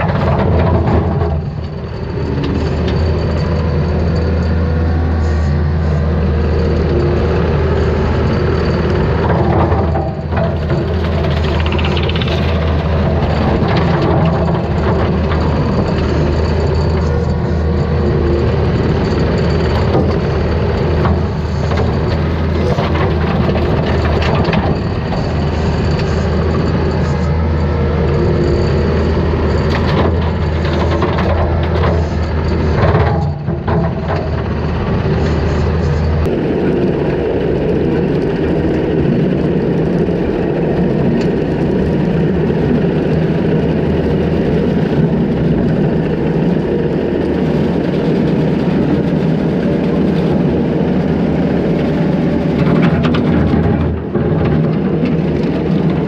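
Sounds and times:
diesel engine under load: 0:00.0 - 0:56.0.

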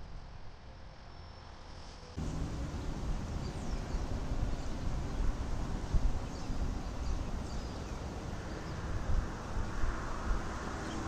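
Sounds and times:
wind buffeting microphone: 0:02.2 - 0:11.0.

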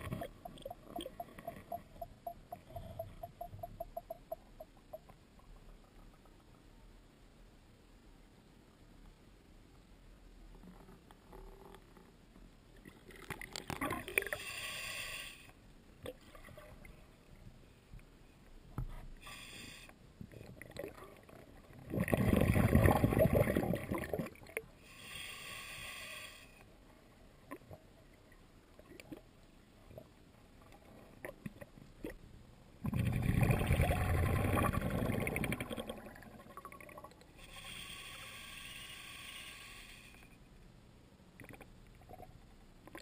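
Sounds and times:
underwater bubbling: 0:00.0 - 0:06.4, 0:20.3 - 0:24.7, 0:27.5 - 0:38.5
faint underwater hissing: 0:14.1 - 0:15.6, 0:19.1 - 0:20.0, 0:24.8 - 0:26.7, 0:37.3 - 0:40.5.

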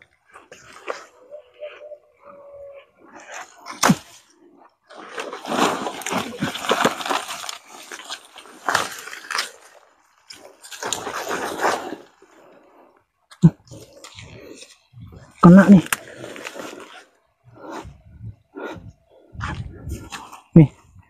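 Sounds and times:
undergrowth and bag rustling: 0:04.9 - 0:12.8, 0:13.5 - 0:20.5.

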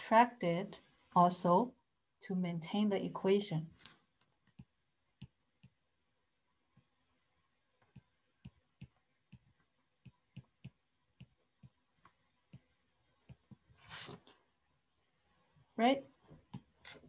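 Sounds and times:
stylus tapping on tablet screen: 0:04.2 - 0:06.0, 0:07.7 - 0:13.7.

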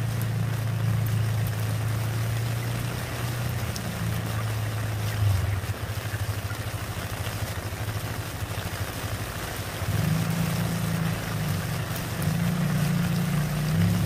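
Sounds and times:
rain pattering into puddle: 0:00.0 - 0:14.0.

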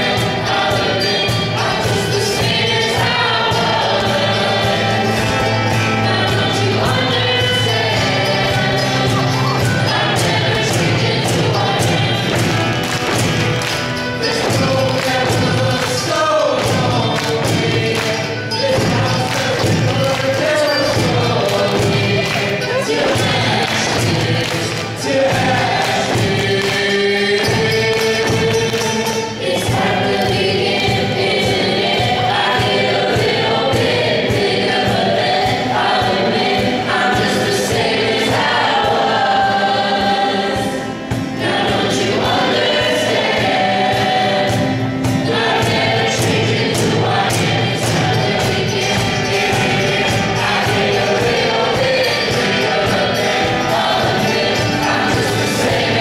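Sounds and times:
cajon beat: 0:00.0 - 0:56.0
group singing: 0:00.0 - 0:56.0
strummed acoustic guitar: 0:00.0 - 0:56.0.

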